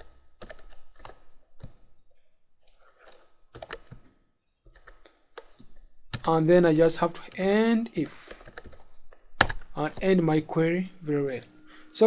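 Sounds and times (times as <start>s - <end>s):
computer keyboard typing: 0.0s - 1.7s, 3.5s - 4.1s, 4.8s - 6.6s, 7.2s - 9.8s.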